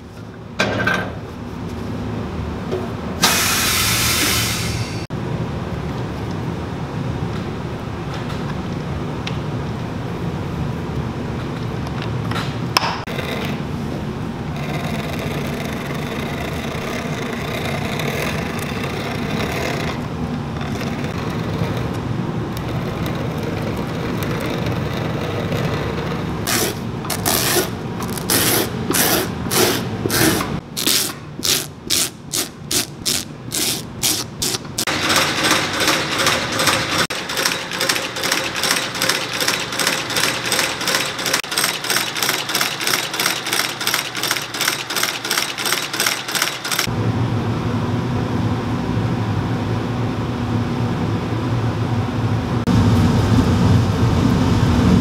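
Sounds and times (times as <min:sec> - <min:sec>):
machine motor hum: 0:13.1 - 0:30.6
stitching machine clatter: 0:14.5 - 0:22.0, 0:32.4 - 0:46.9.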